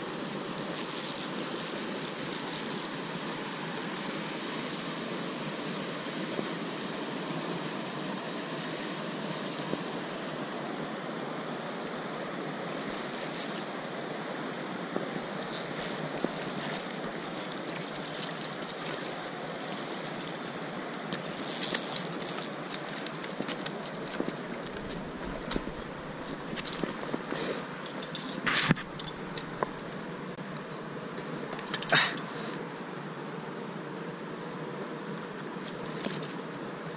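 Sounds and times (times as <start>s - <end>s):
river water rushing over rocks: 0.0s - 30.6s.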